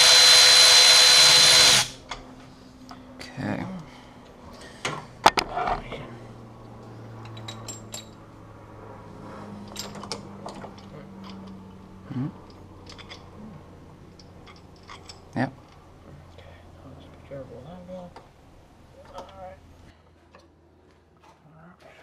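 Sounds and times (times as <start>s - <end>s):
metal clicks and clinks: 7.2s - 8.2s, 9.6s - 11.6s, 12.4s - 13.3s, 14.2s - 15.8s.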